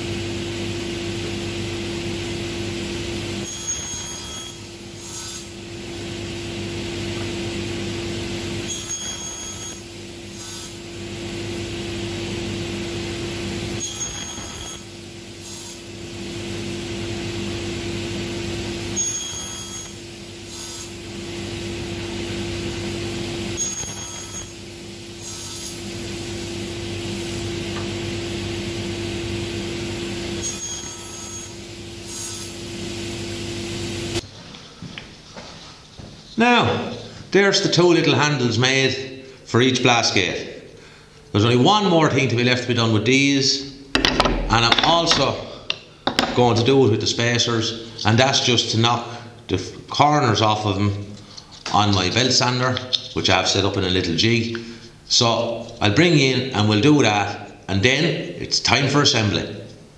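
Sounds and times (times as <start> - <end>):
panel saw running: 0.5 - 34.2
saw blade cutting wood: 3.4 - 5.6, 8.7 - 10.8, 13.8 - 15.9, 19.0 - 21.0, 23.6 - 24.6, 25.2 - 25.8, 30.3 - 32.6.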